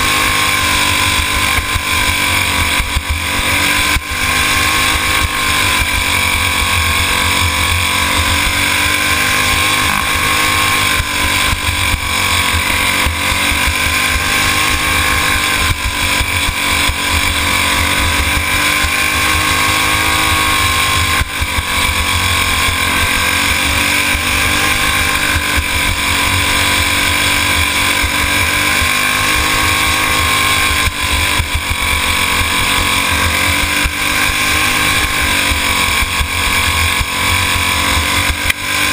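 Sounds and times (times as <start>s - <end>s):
go-kart engine: 0.0s - 38.9s.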